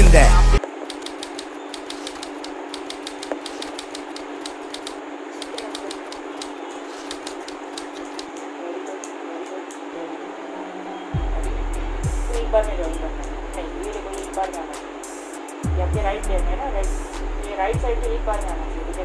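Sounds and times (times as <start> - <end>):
steady background hum: 0.0 - 19.0
plastic puzzle pieces clicking: 0.9 - 8.4.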